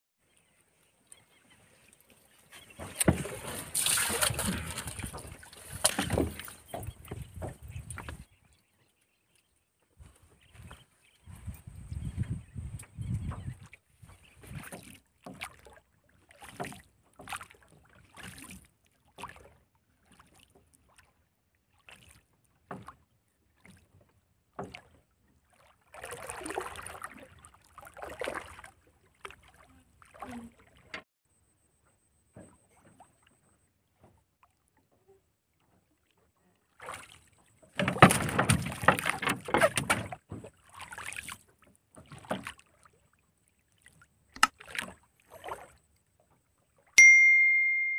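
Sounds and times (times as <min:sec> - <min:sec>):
knocks against wooden hull: 0:02.7 - 0:08.3, 0:37.7 - 0:40.6.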